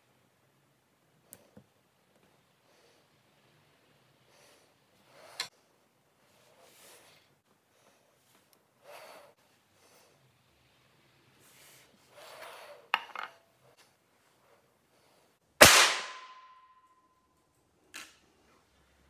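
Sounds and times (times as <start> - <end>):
gunshot crack with ringing: 15.6 - 16.6.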